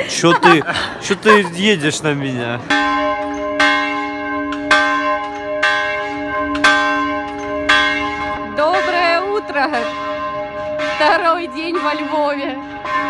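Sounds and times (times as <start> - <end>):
person speaking: 0.0 - 2.4
church bell tolling: 1.8 - 13.0.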